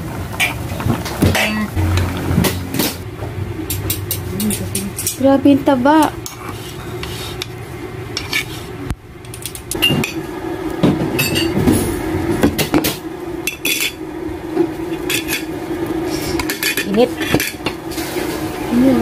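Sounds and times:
steady low hum: 0:00.0 - 0:19.0
fork scraping ceramic plate: 0:08.2 - 0:08.7.

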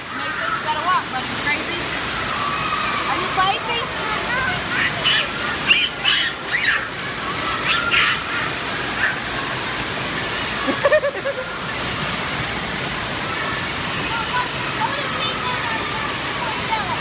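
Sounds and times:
water jets spraying: 0:00.0 - 0:17.0
children squealing and shouting: 0:02.1 - 0:11.6, 0:13.2 - 0:17.0.

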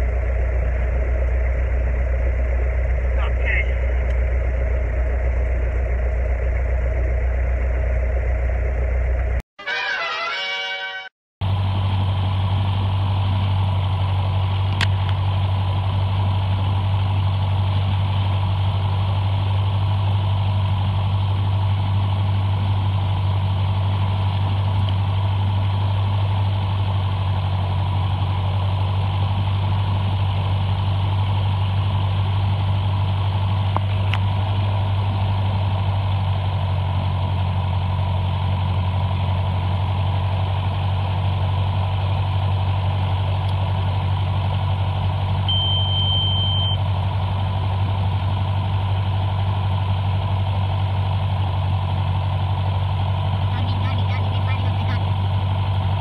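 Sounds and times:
propeller plane engine drone: 0:00.0 - 0:56.0
high beep: 0:45.5 - 0:46.8.

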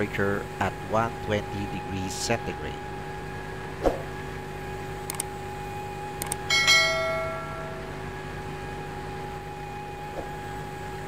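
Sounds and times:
machinery hum: 0:00.0 - 0:11.0
quick clicks: 0:05.0 - 0:05.3, 0:06.2 - 0:06.5
bright bell chime: 0:06.5 - 0:08.0.

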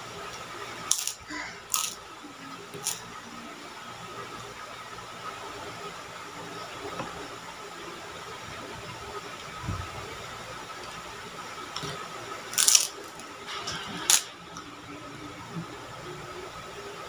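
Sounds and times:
cracker crunching: 0:00.8 - 0:02.0, 0:11.8 - 0:14.3.

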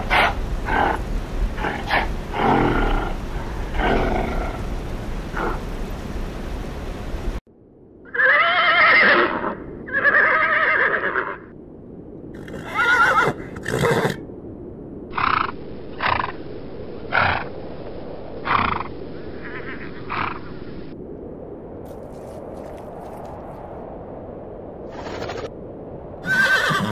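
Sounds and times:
horses neighing: 0:08.1 - 0:11.4, 0:12.4 - 0:14.2, 0:26.2 - 0:26.9.

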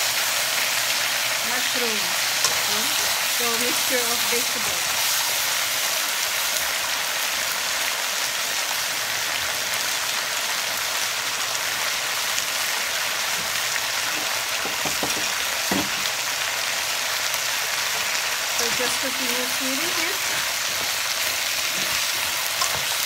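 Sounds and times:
vegetables sizzling in a hot wok: 0:00.0 - 0:23.0.

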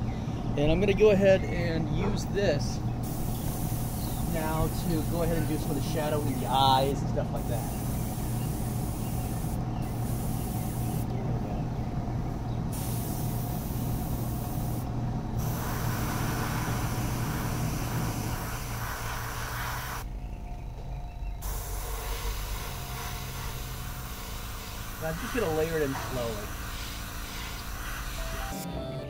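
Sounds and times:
compressor humming: 0:00.0 - 0:29.0
airbrush hissing: 0:03.0 - 0:11.1, 0:12.7 - 0:20.1, 0:21.4 - 0:28.6.

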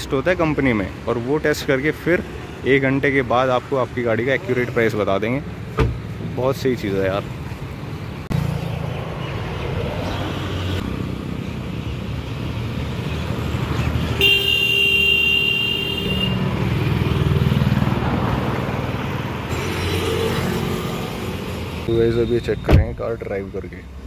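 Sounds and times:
car horn: 0:14.2 - 0:16.5.

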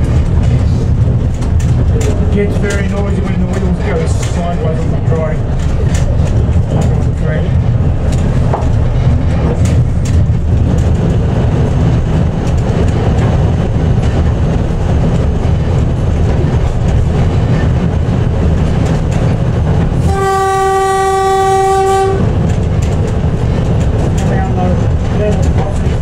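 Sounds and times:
diesel locomotive rumble: 0:00.0 - 0:26.0
wheels clicking over rail: 0:00.0 - 0:26.0
train horn: 0:20.0 - 0:22.4.

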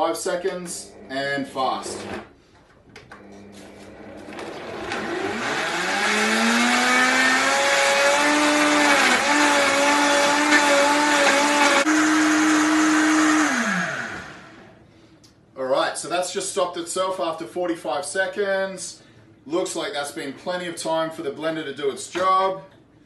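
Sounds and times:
blender motor whining: 0:03.2 - 0:14.7.

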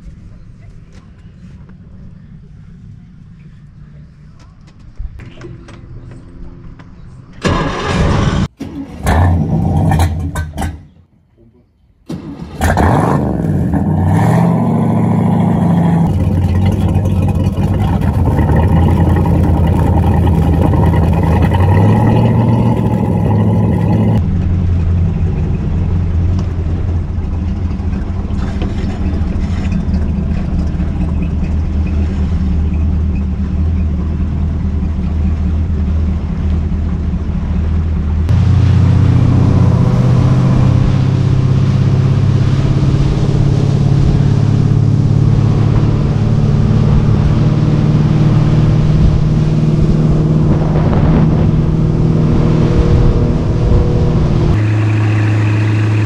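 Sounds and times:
boat engine running: 0:12.4 - 0:56.0.

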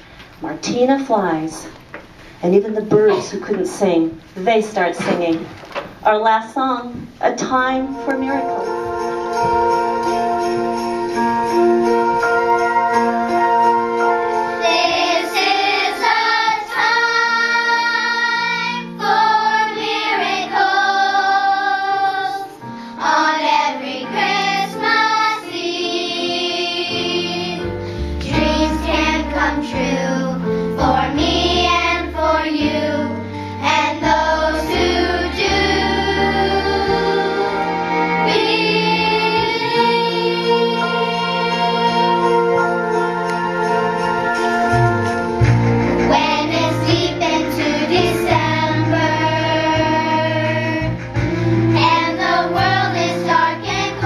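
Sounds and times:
instrumental accompaniment: 0:06.9 - 0:54.0
children's choir singing: 0:14.3 - 0:44.7, 0:46.1 - 0:51.0, 0:51.7 - 0:54.0.

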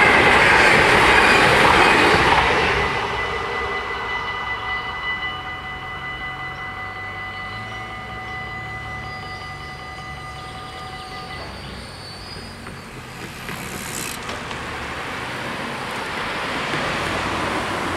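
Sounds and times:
car driving over crossing: 0:00.0 - 0:17.9
level crossing warning bells: 0:00.0 - 0:17.9.

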